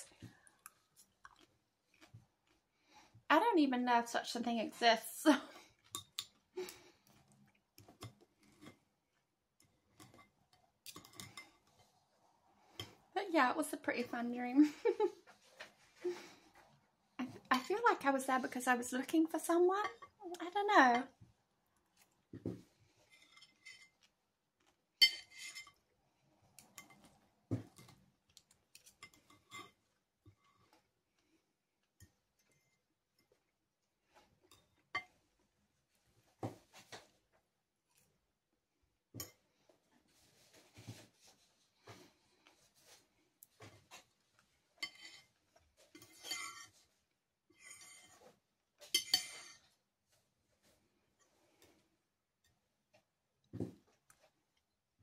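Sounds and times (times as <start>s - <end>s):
cutlery scraping a ceramic plate: 10.0s - 11.9s, 23.0s - 24.0s, 25.0s - 25.8s, 28.8s - 30.5s, 44.8s - 46.9s, 47.5s - 49.7s
knife and fork scraping plate: 25.0s - 25.8s, 44.8s - 45.3s, 45.9s - 46.8s, 47.6s - 48.2s, 48.9s - 49.7s.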